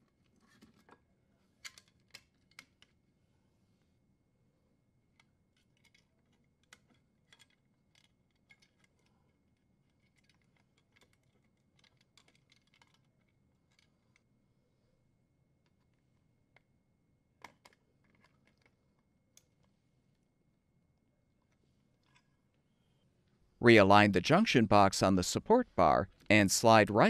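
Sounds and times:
small clicks of handling metal: 1.6s - 3.0s, 5.1s - 14.3s, 17.4s - 19.7s, 21.4s - 22.4s.

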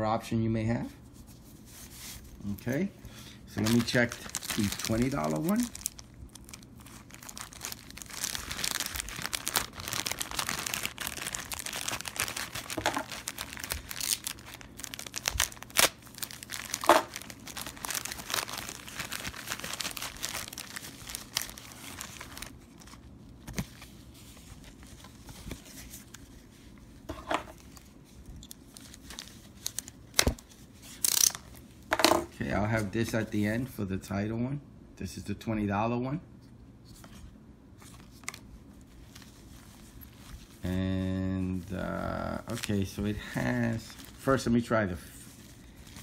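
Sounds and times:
plastic bag crinkling: 3.5s - 23.2s, 41.5s - 46.0s.

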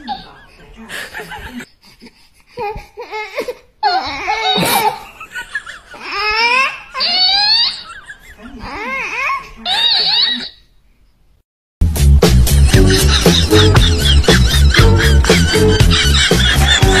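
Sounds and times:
baby laughing: 3.3s - 10.6s, 12.8s - 17.0s.

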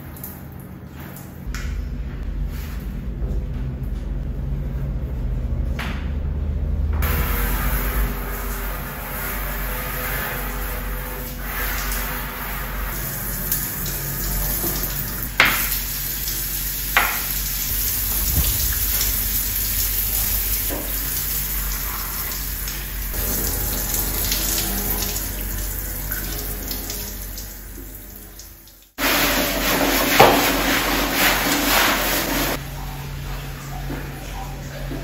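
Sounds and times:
brush scrubbing tiled floor: 7.0s - 27.5s, 29.0s - 35.0s
shower water spraying on glass: 7.0s - 32.6s.

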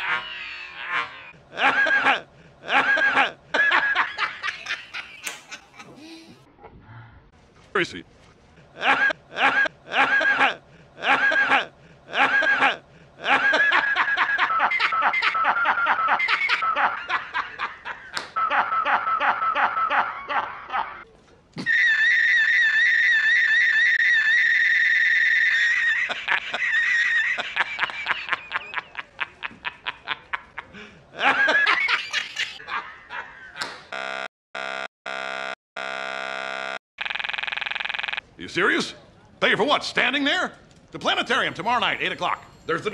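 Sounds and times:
man laughing: 0.0s - 6.3s, 8.8s - 21.0s, 21.6s - 33.6s.

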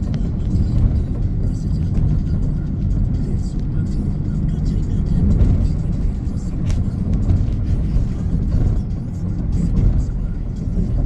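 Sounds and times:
car cabin road rumble: 0.0s - 11.0s.

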